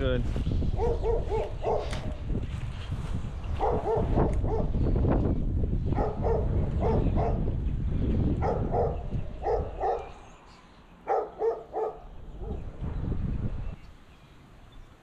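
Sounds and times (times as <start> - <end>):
wind rumbling on microphone: 0.0 - 10.5, 11.1 - 14.1
dog barking: 0.8 - 2.2, 3.6 - 4.8, 5.9 - 7.5, 8.4 - 10.2, 11.0 - 12.7.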